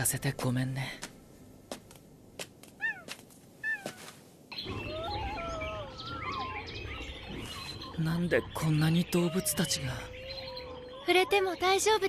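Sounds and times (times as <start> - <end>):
chorus of animal cries: 4.6 - 7.2.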